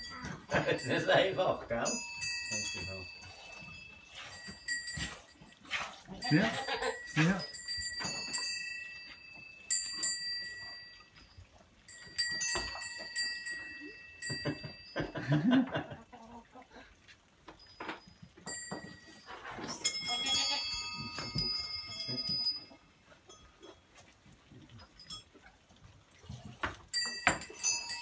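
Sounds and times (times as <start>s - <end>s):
metal bells ringing: 0.0s - 5.6s, 6.2s - 15.6s, 17.6s - 23.8s, 26.9s - 28.0s
goat bleating: 6.2s - 7.0s, 20.1s - 20.8s.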